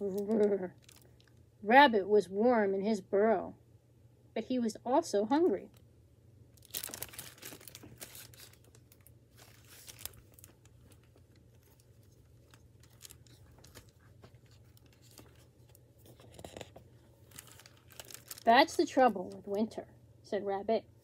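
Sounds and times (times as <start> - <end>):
book pages turning and crinkling: 0.0 - 1.3, 6.6 - 19.6.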